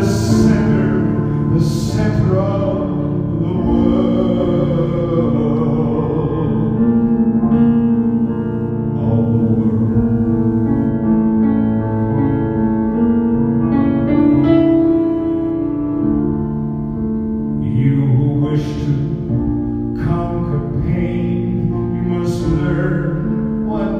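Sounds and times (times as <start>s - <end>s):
piano chords: 0.0s - 23.9s.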